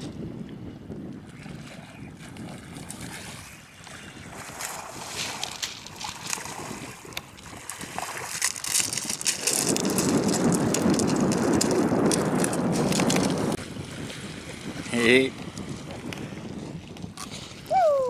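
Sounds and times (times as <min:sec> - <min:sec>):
wind buffeting microphone: 0:00.0 - 0:18.0
footsteps on shingle: 0:05.0 - 0:13.6.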